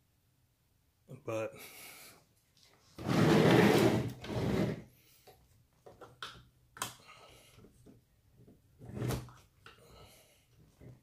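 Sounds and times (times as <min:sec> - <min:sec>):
long scraping rub: 0:03.0 - 0:04.8.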